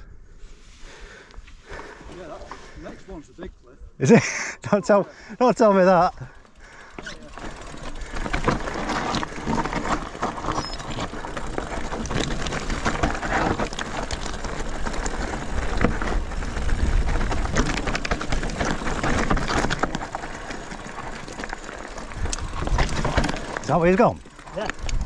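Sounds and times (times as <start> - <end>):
bike rattling: 4.8 - 25.0
tyres crunching over loose stones: 5.5 - 25.0
wind rumble on microphone: 24.8 - 25.0.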